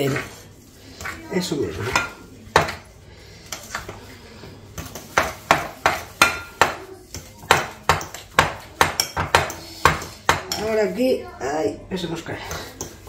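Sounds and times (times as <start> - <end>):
utensil clacking against a mixing bowl: 4.7 - 10.8.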